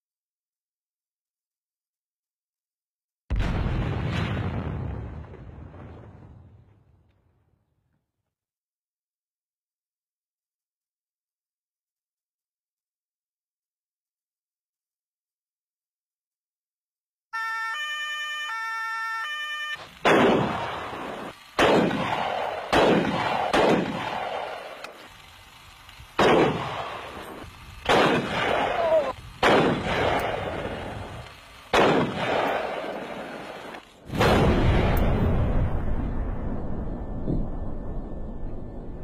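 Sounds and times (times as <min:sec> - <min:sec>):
electronic tone jingle: 0:17.4 - 0:19.9
gunshots with echo: 0:20.0 - 0:24.8, 0:26.2 - 0:26.9, 0:27.9 - 0:30.6, 0:31.7 - 0:33.4.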